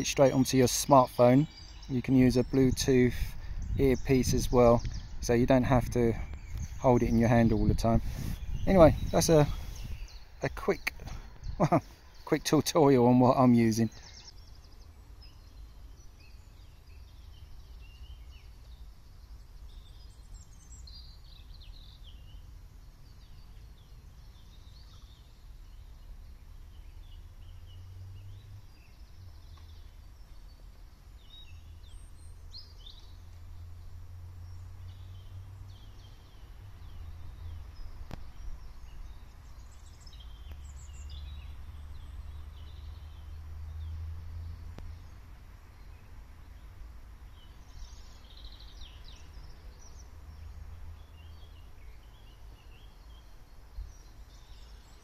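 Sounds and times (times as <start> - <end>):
birds chirping and calling: 0.0 - 18.9.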